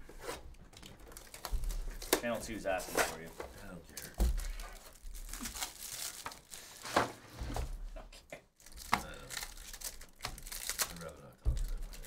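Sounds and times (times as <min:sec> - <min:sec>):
plastic wrap crinkling and tearing: 0:00.2 - 0:07.1, 0:08.5 - 0:12.0.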